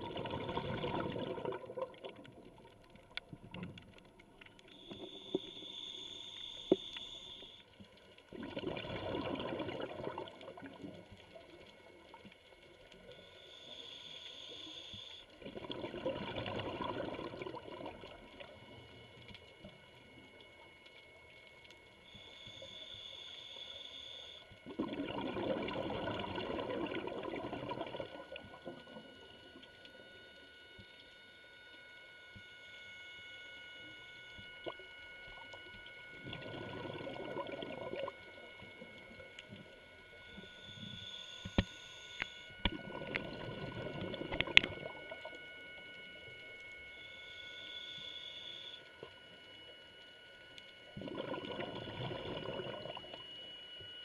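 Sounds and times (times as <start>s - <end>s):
exhaled bubbles rushing: 0.0s - 2.8s, 8.3s - 11.1s, 15.4s - 18.5s, 24.6s - 28.9s, 36.2s - 38.4s, 42.6s - 45.2s, 50.9s - 53.2s
regulator inhale hiss: 4.7s - 7.8s, 13.1s - 15.4s, 22.0s - 24.6s, 40.4s - 42.5s.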